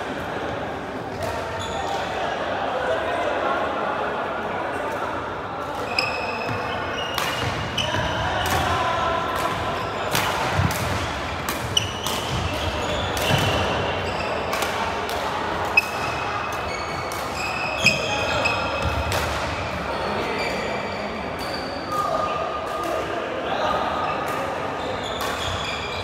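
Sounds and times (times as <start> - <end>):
sneakers squeaking on wooden floor: 5.9 - 8.2, 11.7 - 14.5, 16.7 - 19.0, 24.8 - 26.0.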